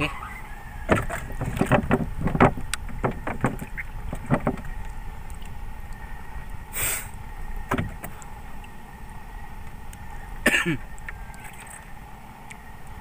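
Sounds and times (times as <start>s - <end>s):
fish knocking on boat: 0.8s - 4.9s, 7.6s - 8.2s.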